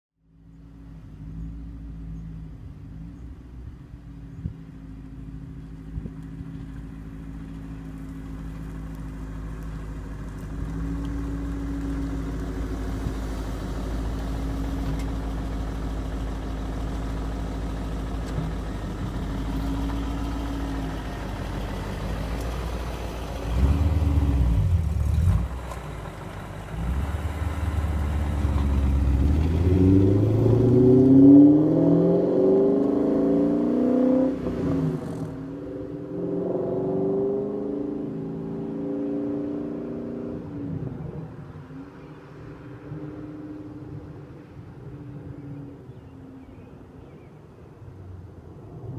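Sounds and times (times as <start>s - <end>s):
car engine idling: 0.7s - 30.4s
car accelerating away: 5.7s - 44.4s.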